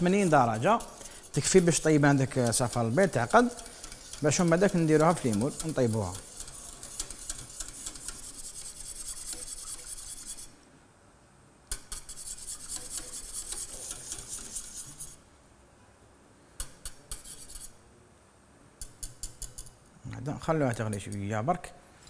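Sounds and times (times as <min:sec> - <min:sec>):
whisk scraping metal saucepan: 0:00.0 - 0:10.6, 0:11.7 - 0:15.2, 0:16.8 - 0:17.7.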